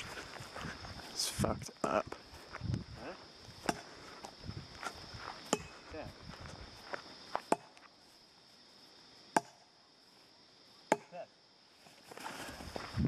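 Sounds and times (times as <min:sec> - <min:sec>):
night insects droning: 0:00.0 - 0:13.0
axe chopping wood: 0:03.6 - 0:03.9, 0:07.5 - 0:07.8, 0:09.3 - 0:09.6, 0:10.9 - 0:11.2.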